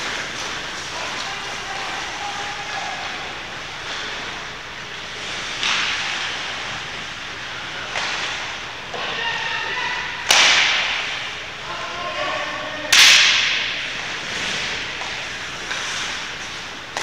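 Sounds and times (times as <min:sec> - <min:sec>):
people shouting: 0:00.9 - 0:03.5, 0:09.0 - 0:10.6.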